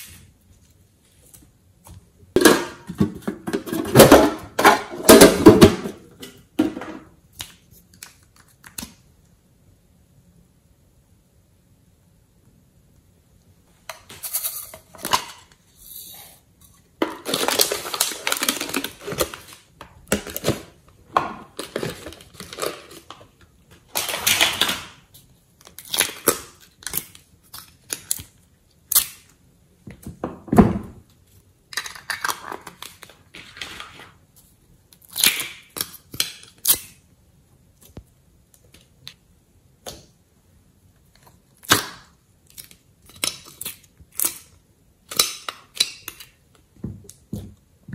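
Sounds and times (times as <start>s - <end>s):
plastic containers clicking and crinkling: 17.0s - 28.4s.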